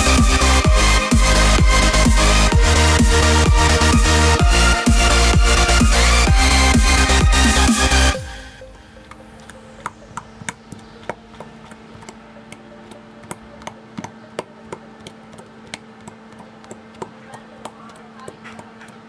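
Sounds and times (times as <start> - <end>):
faint steady hum: 8.2 - 19.0.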